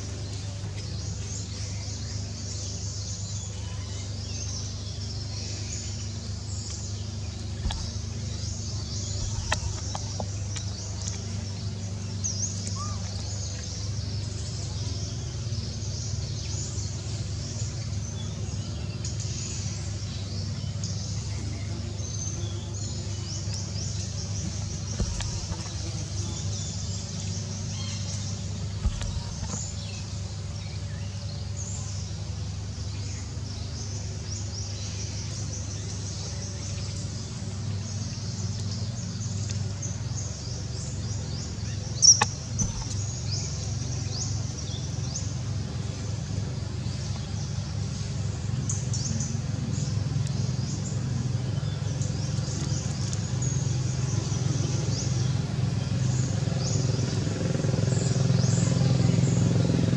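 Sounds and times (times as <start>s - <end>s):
low rumble: 7.5s - 10.8s.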